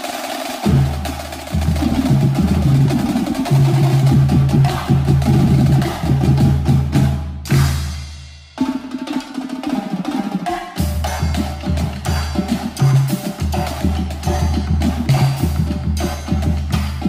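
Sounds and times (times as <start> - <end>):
snare and tenor drums: 0.0 - 17.0
deep bass drum tones: 0.7 - 7.7.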